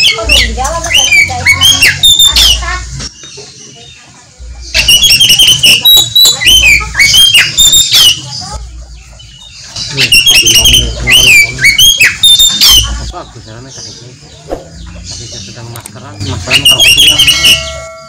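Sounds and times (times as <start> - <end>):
bird singing whistled phrases: 0.0 - 2.6, 4.7 - 8.6, 9.8 - 13.1, 16.2 - 18.0.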